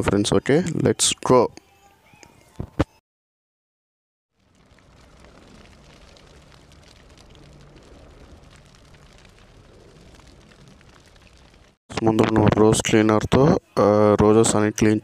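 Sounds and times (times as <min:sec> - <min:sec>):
fire burning with crackles: 0:04.3 - 0:13.5.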